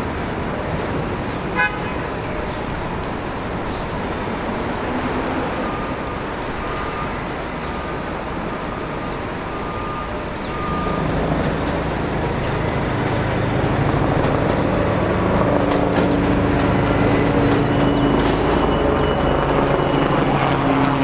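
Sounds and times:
train wheels rumbling on track: 10.2s - 21.0s.

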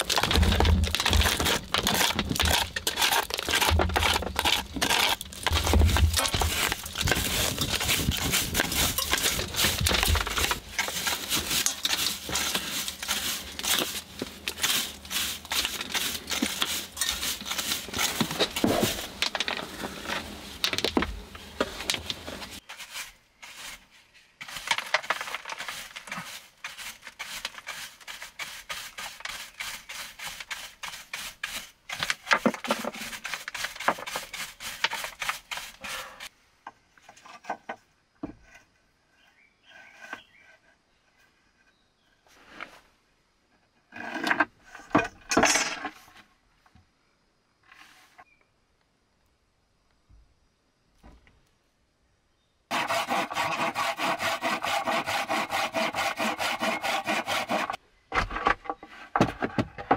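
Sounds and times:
brush sweeping grit off stone: 0.1s - 20.6s, 22.3s - 36.3s, 52.7s - 57.8s.

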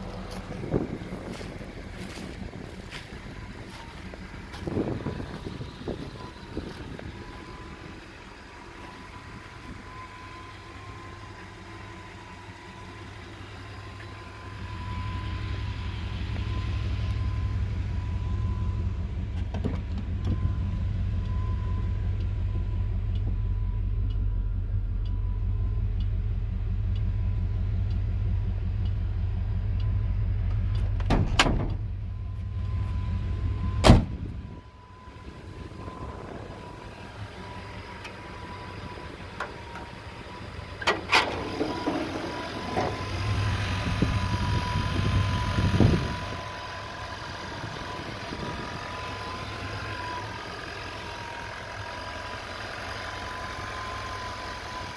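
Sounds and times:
low steady rumble: 0.0s - 54.9s
car door shutting: 19.4s - 20.1s, 30.7s - 31.9s, 33.8s - 34.3s, 40.8s - 43.3s.

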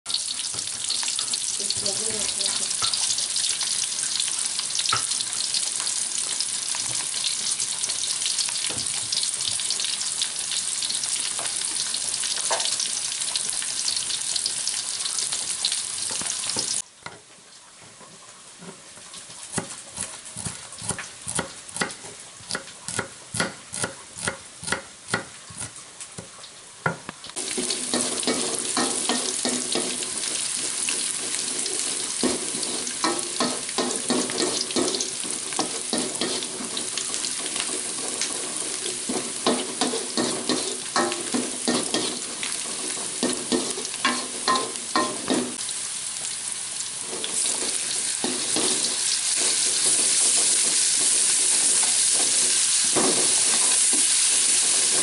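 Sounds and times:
vegetables sizzling in hot oil: 0.1s - 17.3s, 18.4s - 55.0s
wooden spatula scraping wok: 27.4s - 45.6s, 47.0s - 55.0s.

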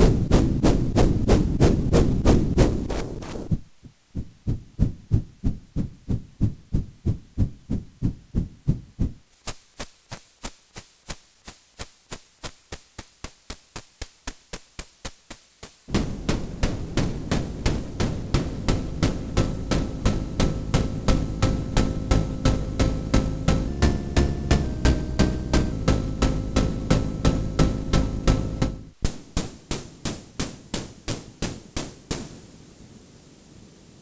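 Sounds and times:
low noise rumble: 0.0s - 9.3s, 15.9s - 29.2s
rhythmic noise bursts: 0.0s - 32.8s.

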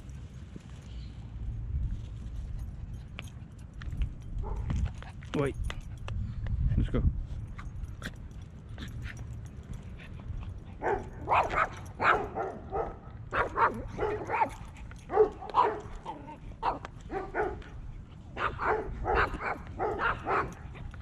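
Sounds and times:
small dog barking: 10.8s - 17.6s, 18.4s - 20.6s.

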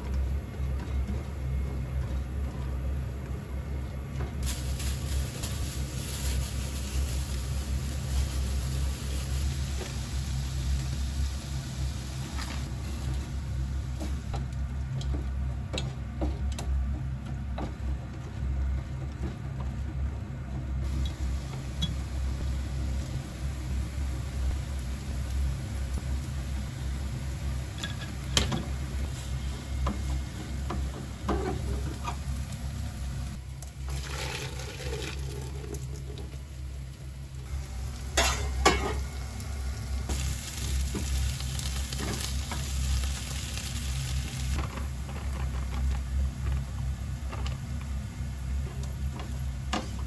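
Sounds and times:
steady low hum: 0.0s - 50.0s
food sizzling in a frying pan: 4.4s - 13.9s, 37.4s - 44.6s.

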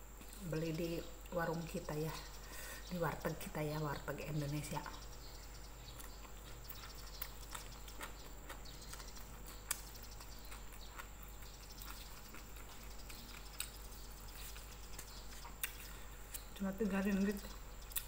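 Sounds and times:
soft chewing: 4.9s - 18.0s.

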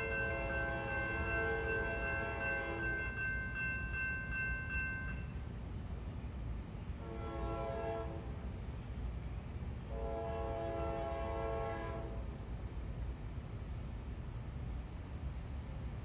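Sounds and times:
locomotive horn blasts: 7.0s - 8.3s, 9.9s - 12.2s.

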